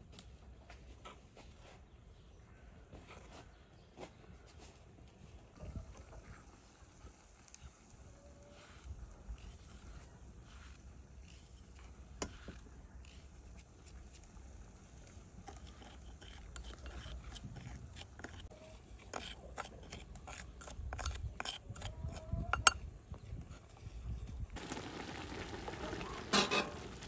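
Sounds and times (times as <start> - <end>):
wooden spoon scraping clay bowl: 7.4 - 14.4, 15.0 - 24.2.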